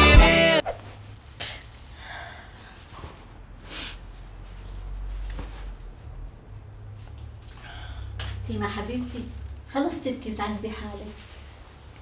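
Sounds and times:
sharp sniff: 1.4 - 4.1.

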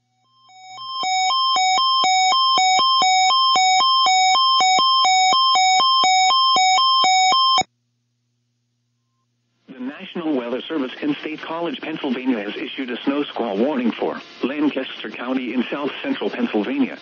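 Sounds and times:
two-tone electronic alert: 0.1 - 7.7.

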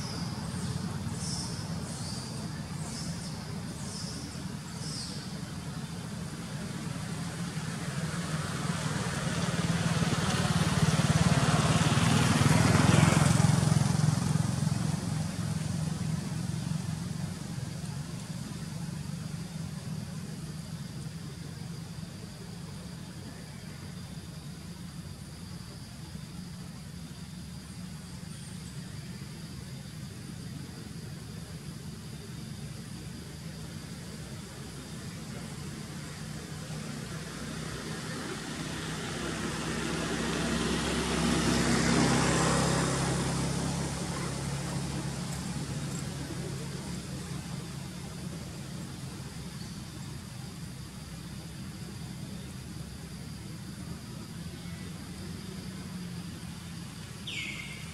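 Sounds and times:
vehicle engine passing: 6.1 - 20.0, 33.7 - 57.9.

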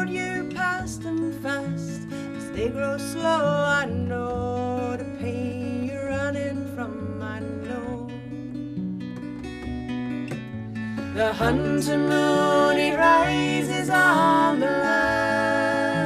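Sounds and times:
strummed acoustic guitar: 0.0 - 16.0
women singing in harmony: 11.1 - 16.0.

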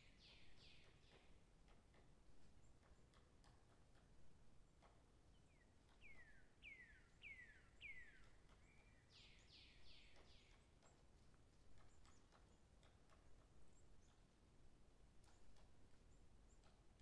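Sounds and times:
faint bird whistling calls: 6.0 - 10.6.

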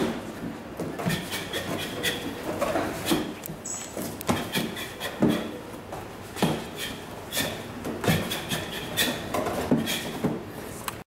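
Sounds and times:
shoe squeaks: 1.0 - 5.6, 6.4 - 10.3.

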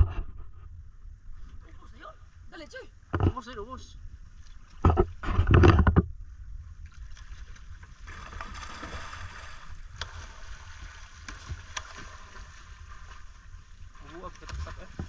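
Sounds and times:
constant low rumble: 0.0 - 15.0
water lapping and splashing: 6.7 - 15.0.

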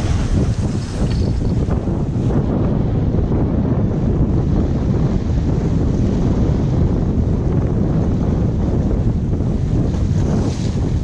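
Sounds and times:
waves breaking on rocks: 0.0 - 1.9
wind buffeting microphone: 0.0 - 11.0.

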